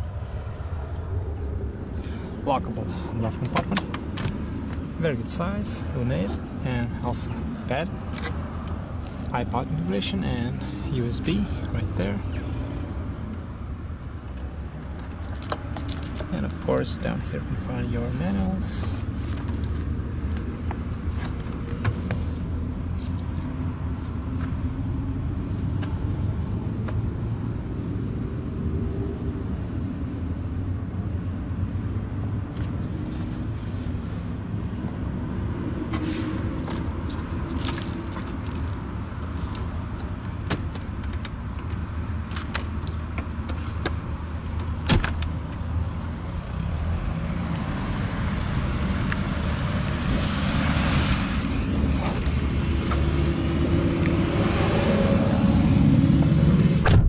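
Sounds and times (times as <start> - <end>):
clicks and knocks of handling: 36.6 - 45.6.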